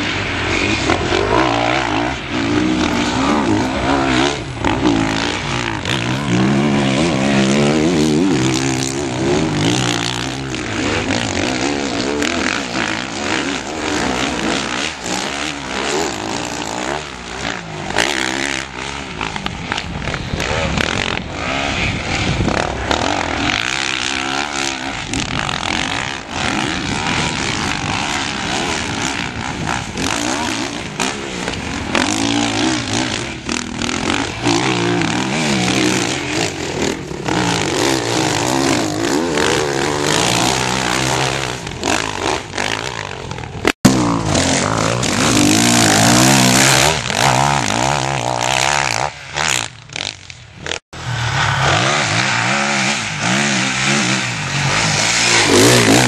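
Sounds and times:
motorcycle engines revving: 0.0s - 56.0s.

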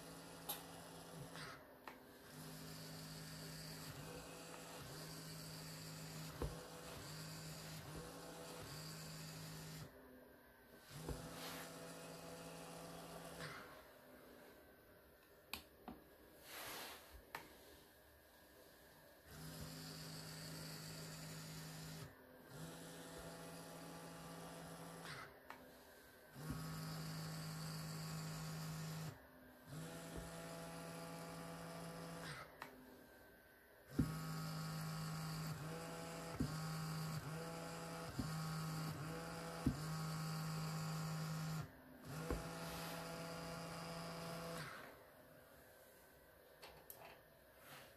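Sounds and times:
small electric motor whining: 0.0s - 10.0s, 10.7s - 13.9s, 19.2s - 32.7s, 33.9s - 45.0s.

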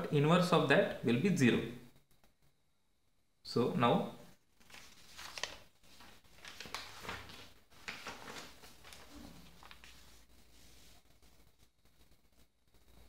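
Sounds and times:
paper rustling and sliding: 4.6s - 12.5s.

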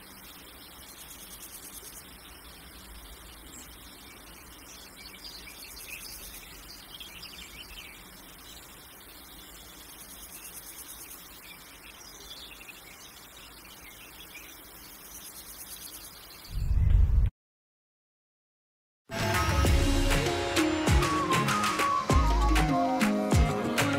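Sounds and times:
insects chirring: 0.0s - 16.5s
bird chirps: 0.0s - 16.8s.

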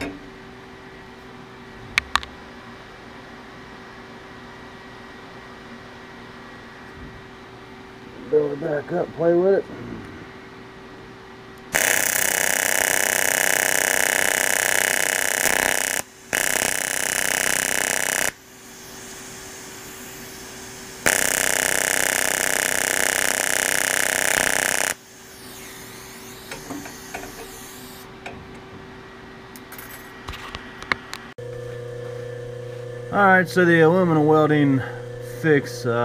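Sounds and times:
welding arc buzzing: 11.6s - 28.3s
welder humming: 11.6s - 36.0s.

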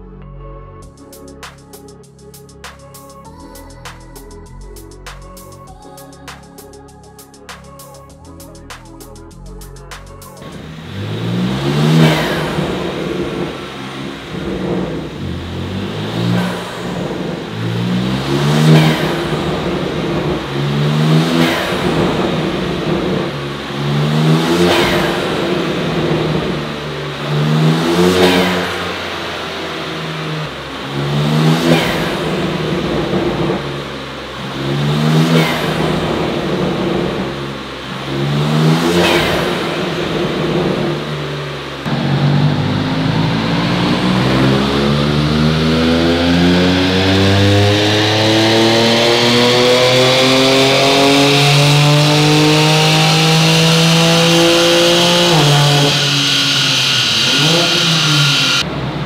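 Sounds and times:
car engine revving: 10.0s - 59.0s
high turbo whistle: 53.0s - 58.7s.

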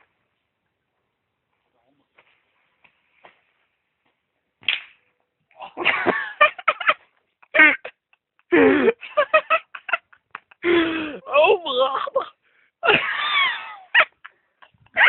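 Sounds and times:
people laughing and shouting: 12.8s - 14.2s.

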